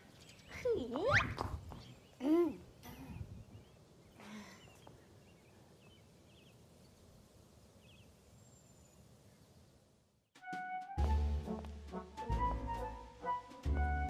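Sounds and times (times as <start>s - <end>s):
soft bird chirps: 2.8s - 9.6s.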